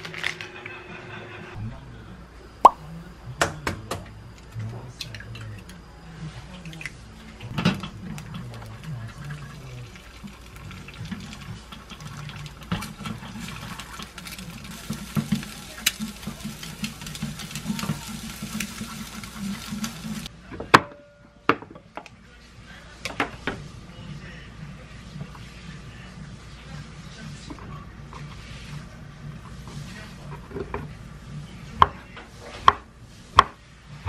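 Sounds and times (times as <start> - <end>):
egg sizzling in pan: 8.1 - 20.3.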